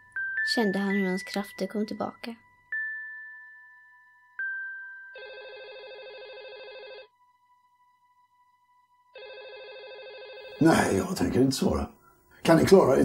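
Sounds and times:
telephone ringing: 5.1s - 7.2s, 9.0s - 11.0s.

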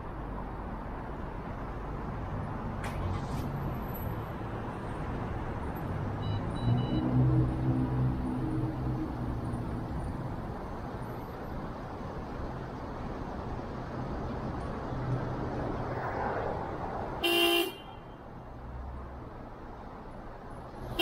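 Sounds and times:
traffic and road noise: 0.0s - 21.0s
car horn honk: 17.2s - 18.1s.

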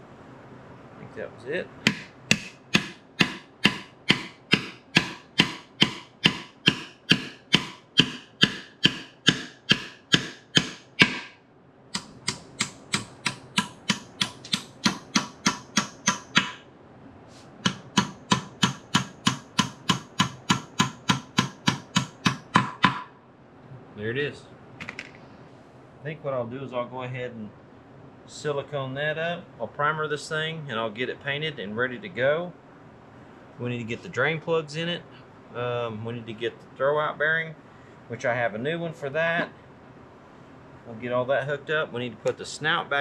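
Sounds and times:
hammer striking metal shaft: 1.8s - 11.4s, 12.0s - 16.6s, 17.6s - 23.1s.

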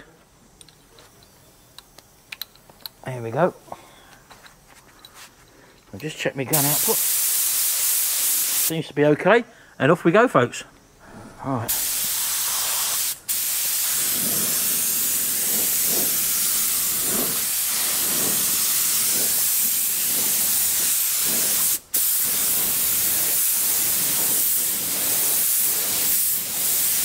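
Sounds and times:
spray gun hissing: 6.5s - 8.8s, 11.1s - 27.0s.

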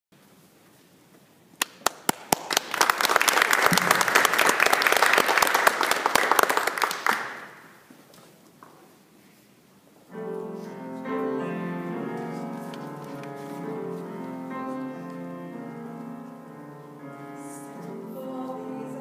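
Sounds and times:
audience applauding: 1.6s - 7.8s.

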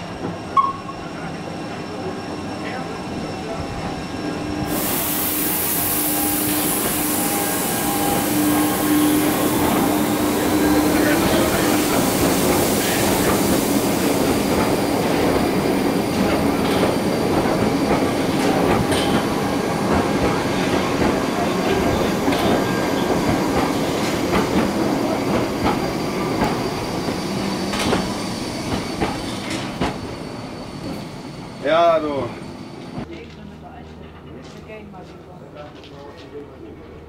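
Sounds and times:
train rumbling: 0.0s - 37.0s.

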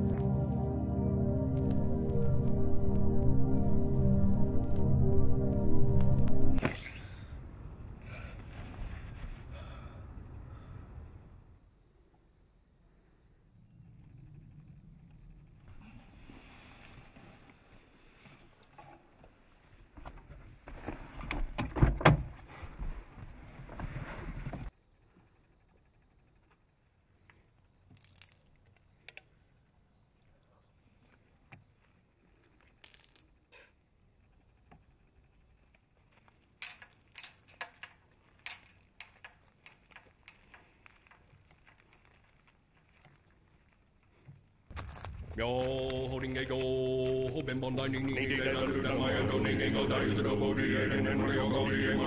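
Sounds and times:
gate latch and chain clinking: 36.6s - 43.0s
footsteps: 38.6s - 50.5s.

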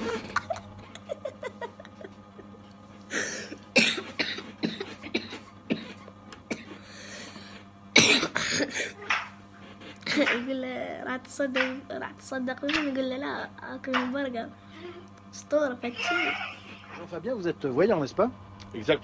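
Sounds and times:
boy stifling laughter: 0.0s - 2.6s
steady low hum: 0.0s - 19.0s.

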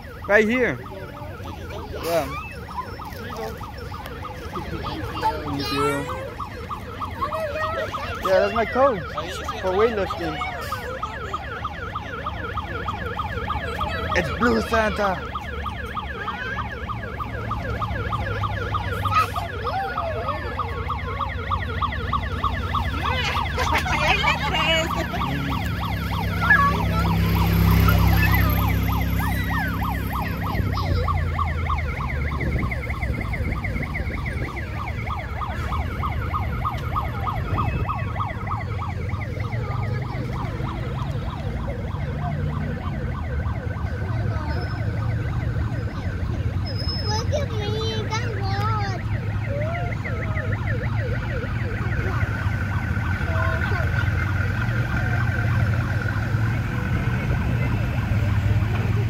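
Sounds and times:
siren yelping: 0.0s - 59.0s.

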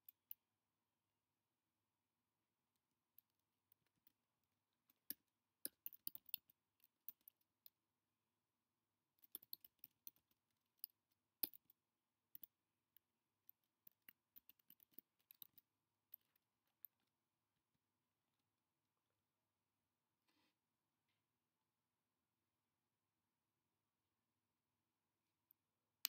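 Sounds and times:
faint keyboard typing: 4.9s - 7.4s, 13.5s - 16.9s.

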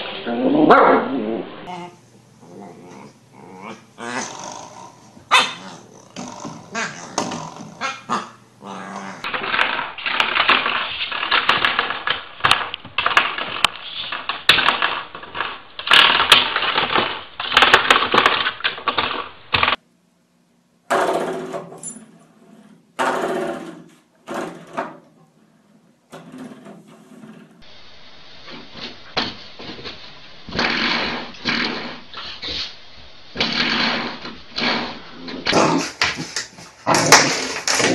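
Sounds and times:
puppies growling: 0.2s - 10.8s, 33.4s - 37.9s.

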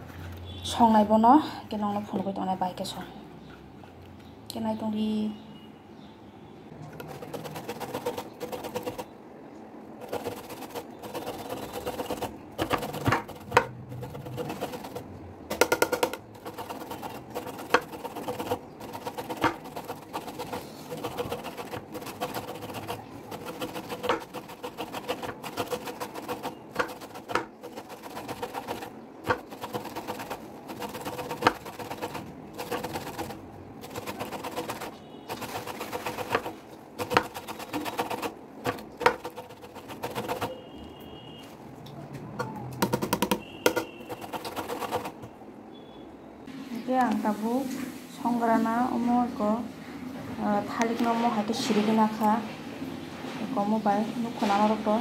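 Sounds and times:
food scraping on metal grater: 7.0s - 9.1s, 10.0s - 40.6s, 43.7s - 45.2s.

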